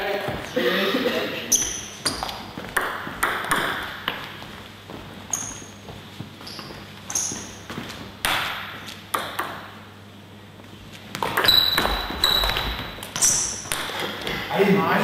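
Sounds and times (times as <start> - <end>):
table tennis ball clicking: 9.1 - 9.7.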